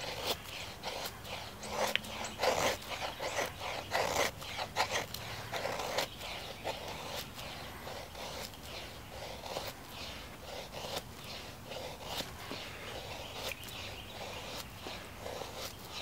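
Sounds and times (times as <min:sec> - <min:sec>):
knife scraping wooden stick: 0:00.0 - 0:16.0.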